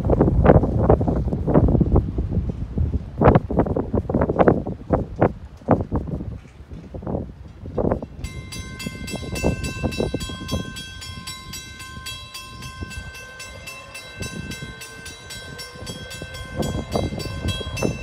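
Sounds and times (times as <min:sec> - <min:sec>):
crossing warning bell ringing: 0:08.0 - 0:18.0.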